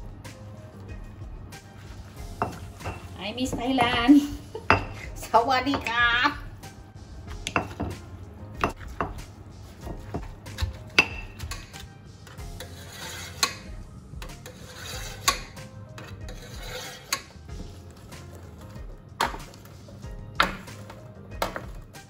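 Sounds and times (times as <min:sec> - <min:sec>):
pestle rubbing and scraping: 0:01.6 - 0:04.5, 0:07.1 - 0:21.8
pestle knocking in stone mortar: 0:07.4 - 0:08.0, 0:20.3 - 0:21.8.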